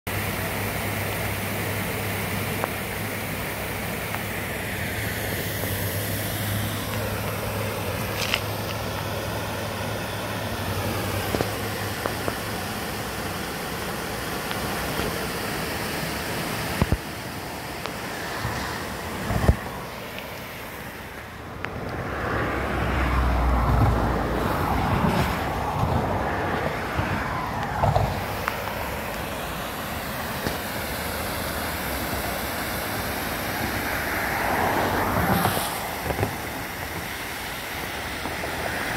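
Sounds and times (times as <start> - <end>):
even hiss: 0.1 - 23.6, 24.2 - 38.9.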